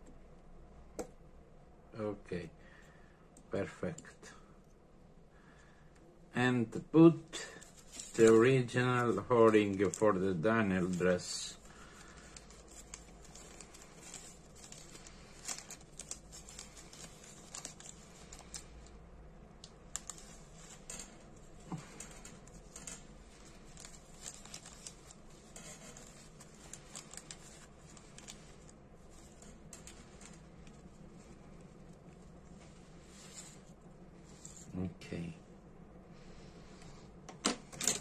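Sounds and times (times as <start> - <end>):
plastic bag crinkling: 7.4 - 19.0, 19.6 - 34.7.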